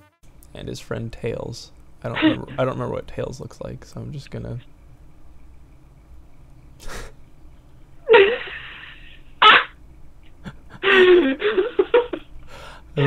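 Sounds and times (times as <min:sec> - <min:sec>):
man huffing: 0:06.8 - 0:07.2.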